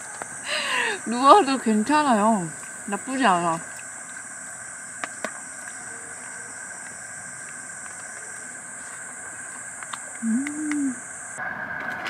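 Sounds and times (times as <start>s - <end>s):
night insects chirring: 0.0s - 11.4s
faint clicks: 9.8s - 11.0s.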